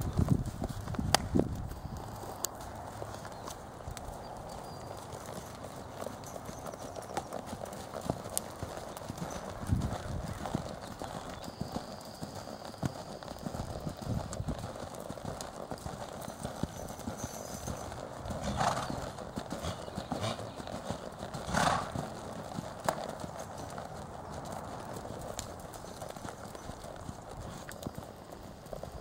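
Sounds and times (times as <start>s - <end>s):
hoofbeats on soft dirt: 0.0s - 29.0s.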